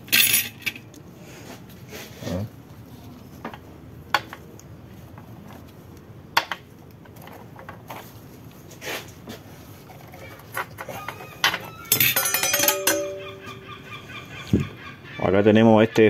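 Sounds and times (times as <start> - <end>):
low steady background noise: 0.0 - 16.0
metal plates clinking: 11.0 - 13.8.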